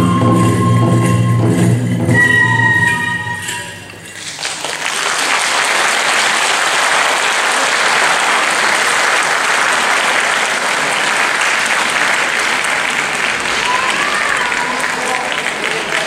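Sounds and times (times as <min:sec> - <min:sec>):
audience applauding: 0:04.2 - 0:16.0.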